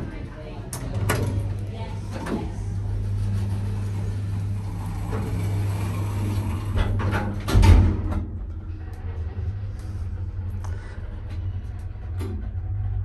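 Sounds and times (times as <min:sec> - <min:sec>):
low hum: 0:00.0 - 0:13.0
lift doors sliding closed: 0:00.7 - 0:08.8
heavy clunk: 0:06.8 - 0:08.4.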